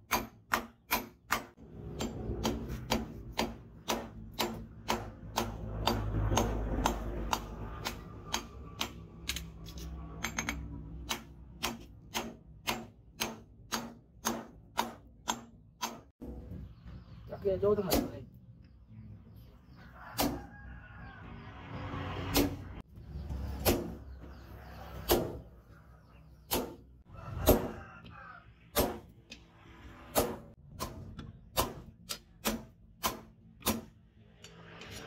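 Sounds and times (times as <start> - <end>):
hammer striking metal on anvil: 0.0 - 9.5, 10.2 - 16.4.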